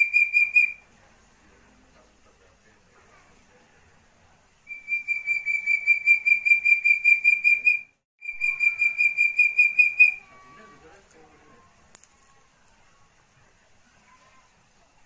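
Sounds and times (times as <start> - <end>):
partridge whistled calls: 0.0 - 0.8, 4.7 - 10.5.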